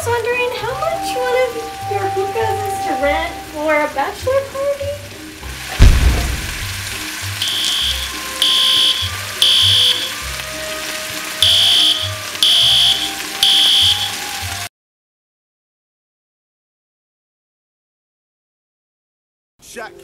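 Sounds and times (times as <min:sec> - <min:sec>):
background music: 0:00.0 - 0:14.7, 0:19.6 - 0:20.0
fire alarm high beeps: 0:07.4 - 0:10.2, 0:11.4 - 0:14.2.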